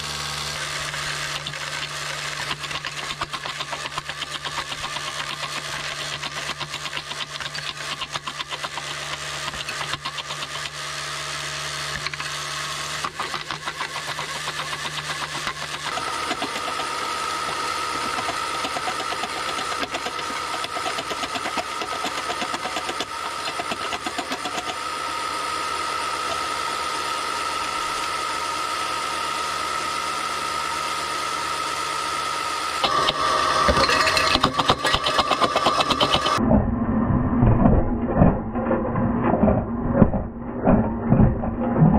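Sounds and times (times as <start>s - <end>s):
small electric motors running: 0.0s - 36.4s
fast continuous rattle: 0.7s - 24.9s, 32.8s - 36.4s.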